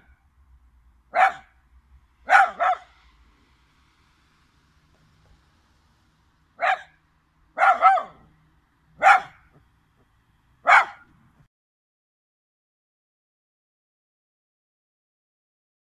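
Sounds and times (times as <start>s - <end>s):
dog barking: 1.1s - 1.6s, 2.2s - 3.0s, 6.6s - 8.3s, 9.0s - 9.6s, 10.6s - 11.1s.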